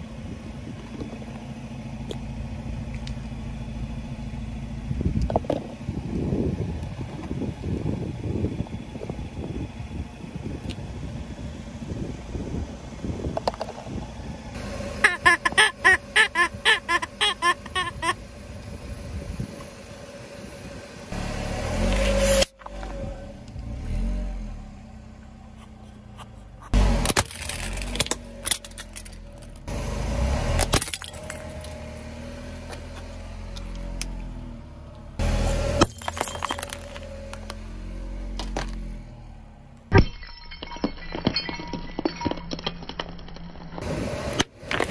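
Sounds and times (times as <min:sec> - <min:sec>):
low rumble: 0:00.0 - 0:14.8
car rumble: 0:00.0 - 0:44.9
rubber chicken toy squeaking: 0:15.0 - 0:18.2
plastic toys crunching under tyre: 0:25.8 - 0:29.6, 0:30.6 - 0:31.8, 0:41.3 - 0:44.9.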